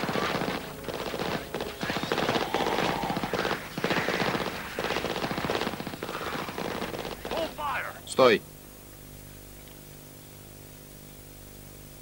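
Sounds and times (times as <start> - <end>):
automatic gunfire bursts: 0.0 - 7.6.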